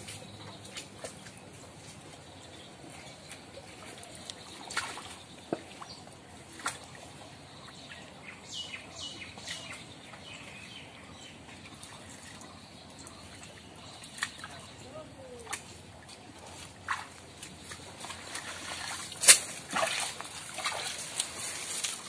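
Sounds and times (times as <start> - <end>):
pond water splashing and trickling: 0.0 - 22.0
sharp splashes: 4.4 - 5.9, 16.7 - 22.0.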